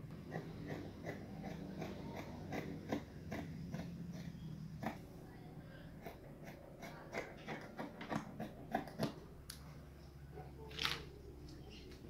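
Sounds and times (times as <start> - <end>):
scissors snipping fabric: 0.2 - 5.1, 6.0 - 9.6.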